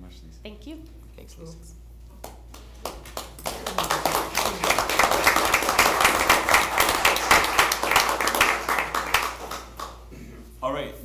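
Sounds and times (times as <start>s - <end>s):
group applauding: 2.2s - 10.1s.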